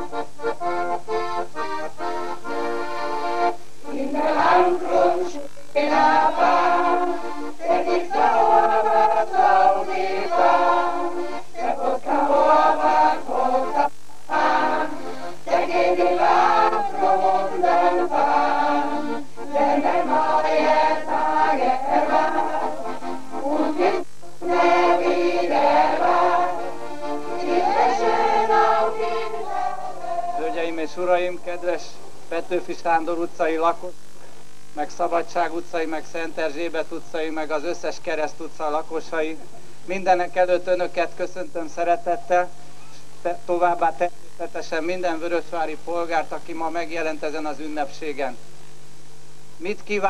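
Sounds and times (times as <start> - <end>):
steady low hum: 0.0 - 50.0
choir singing in harmony: 3.4 - 31.7.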